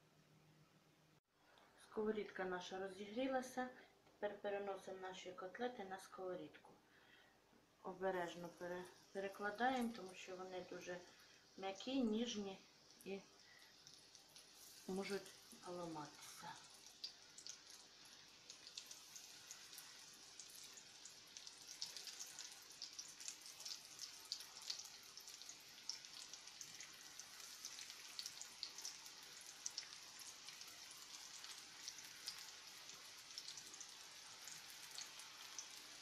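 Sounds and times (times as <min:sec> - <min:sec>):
food sizzling in hot oil: 0:08.2 - 0:36.0.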